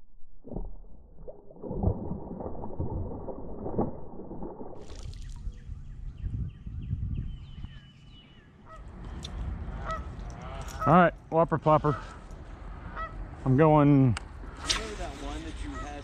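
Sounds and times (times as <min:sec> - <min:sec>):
fish splashing at water surface: 0:01.2 - 0:05.4.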